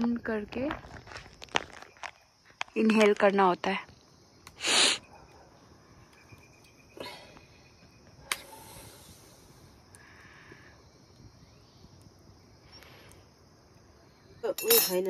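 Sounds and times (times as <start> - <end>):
wood fire hissing and crackling: 0.1 - 14.5
sharp pop of fire: 8.2 - 8.9.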